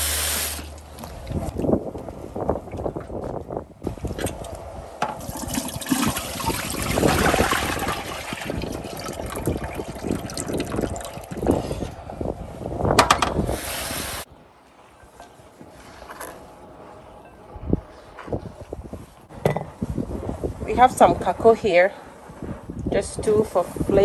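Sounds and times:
water sloshing from bowl: 5.1s - 11.8s.

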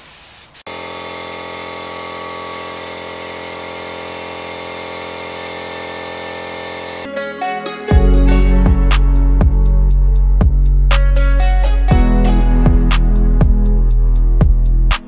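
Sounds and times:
paint spray gun hissing: 0.0s - 7.1s
multi-tone hum: 0.7s - 7.1s.

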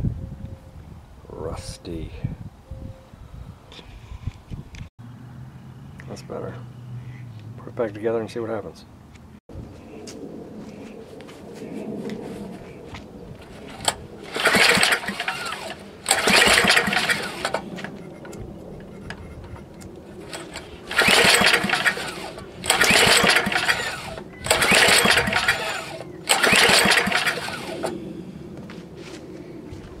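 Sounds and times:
engine cranking on pull-start: 13.4s - 28.0s.

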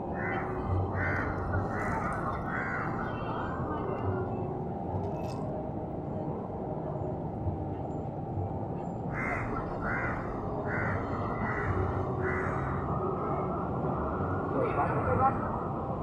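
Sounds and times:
low outdoor hum: 0.0s - 16.0s
crow cawing: 0.2s - 3.1s, 9.1s - 12.8s.

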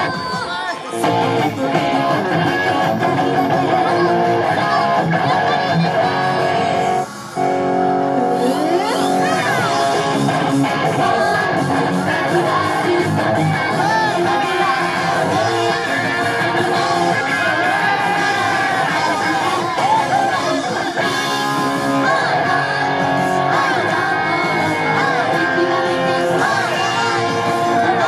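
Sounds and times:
young women singing: 0.0s - 2.4s, 10.7s - 28.0s
loud guitar: 0.0s - 28.0s
pop-rock song over a pa: 0.0s - 28.0s.

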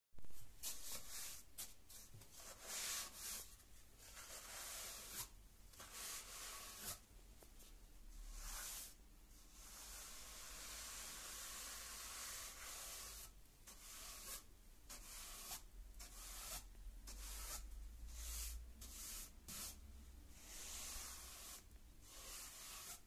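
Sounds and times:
brush sweeping grit on stairs: 9.6s - 19.8s, 20.4s - 23.0s.

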